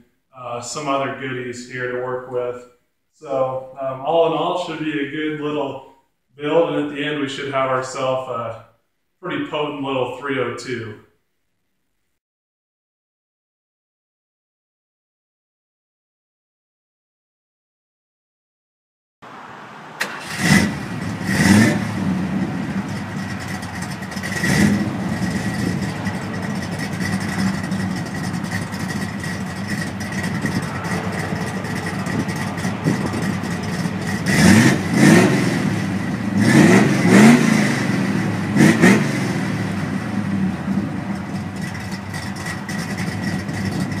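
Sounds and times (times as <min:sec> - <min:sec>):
car engine idling and revving: 0:19.2 - 0:44.0.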